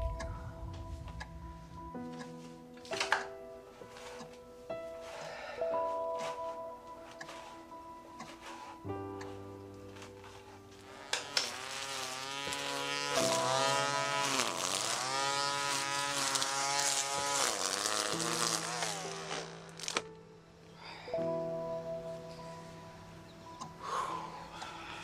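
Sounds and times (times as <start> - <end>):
low music chords: 0.0 - 25.0
string trimmer motor whining: 10.2 - 20.1.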